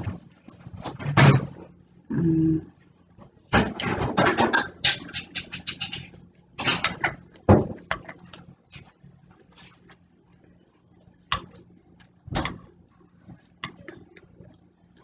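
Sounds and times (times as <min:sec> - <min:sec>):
fork scraping on plate: 0:04.8 - 0:07.0.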